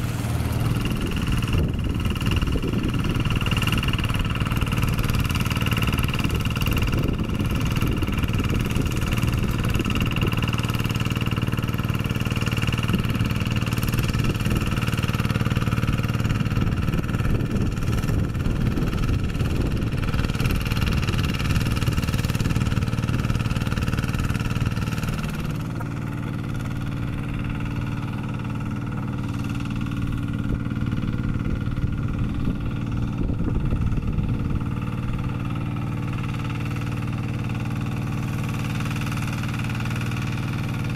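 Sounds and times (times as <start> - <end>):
rotary tiller through mud: 0.0 - 40.9
single-cylinder diesel engine running: 0.0 - 40.9.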